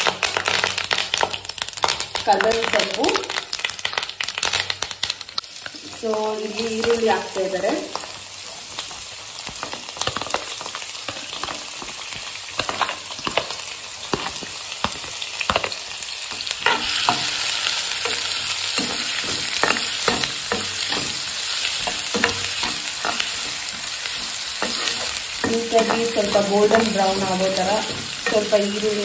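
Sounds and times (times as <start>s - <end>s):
onions sizzling in hot oil: 0.0s - 29.0s
metal spoon scraping a pan: 16.4s - 29.0s.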